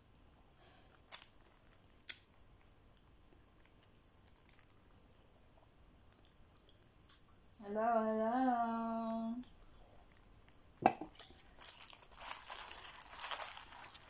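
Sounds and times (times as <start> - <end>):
person chewing food: 0.9 - 7.2.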